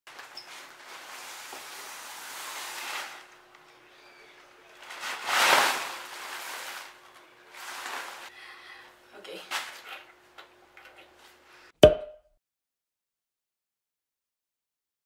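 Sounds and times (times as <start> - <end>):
plastic bag rustling: 0.1 - 3.3, 4.8 - 8.3.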